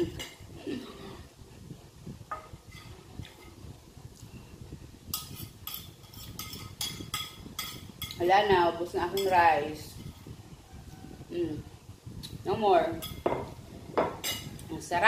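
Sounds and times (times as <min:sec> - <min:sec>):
metal spoon scraping a plate: 0:02.4 - 0:03.6, 0:05.1 - 0:08.2.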